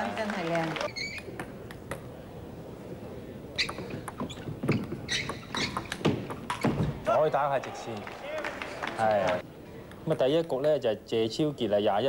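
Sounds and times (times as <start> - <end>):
low hum of sports hall: 0.0 - 12.0.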